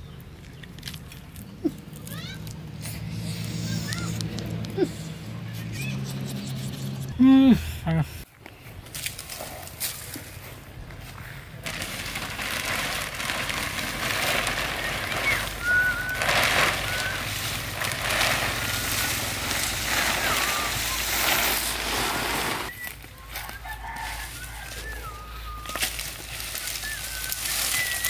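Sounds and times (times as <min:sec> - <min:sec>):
bird chirps: 0:05.5 - 0:07.1
plastic tarp rustling and crinkling: 0:11.6 - 0:28.0.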